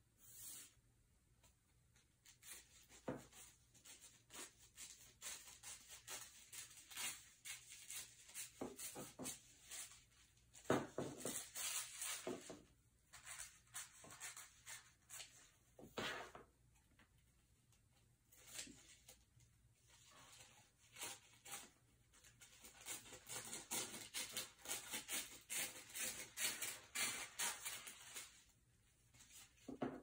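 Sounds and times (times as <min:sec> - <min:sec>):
scissors snipping tissue paper: 0:02.2 - 0:10.2, 0:20.4 - 0:28.5.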